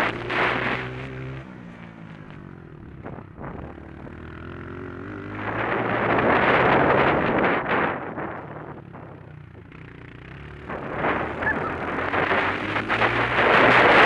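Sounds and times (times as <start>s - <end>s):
dirt bike engine: 9.9s - 14.0s
wind buffeting microphone: 10.6s - 14.0s.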